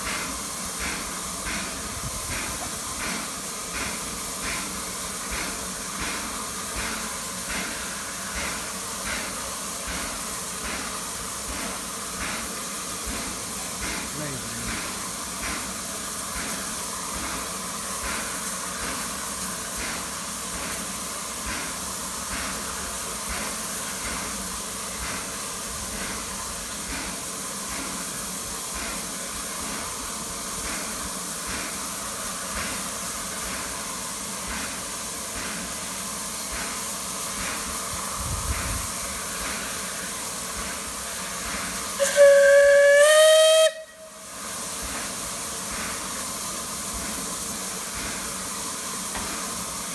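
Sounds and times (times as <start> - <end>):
faint regular locomotive beats: 0.0 - 49.9
steam hissing: 0.0 - 49.9
steam locomotive whistle: 42.0 - 44.4.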